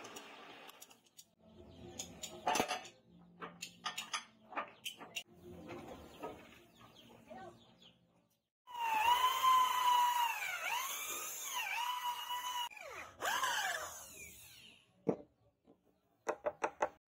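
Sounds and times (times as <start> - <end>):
electric drill boring into wood: 8.7 - 14.8.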